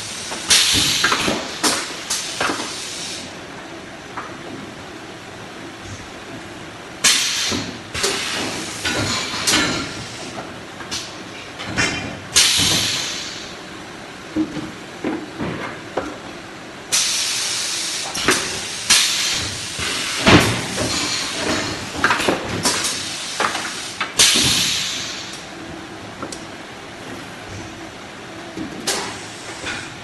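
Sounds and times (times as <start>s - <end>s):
air hissing bursts: 0.0s - 3.3s, 7.0s - 10.4s, 12.4s - 13.5s, 16.9s - 22.0s, 22.6s - 25.4s.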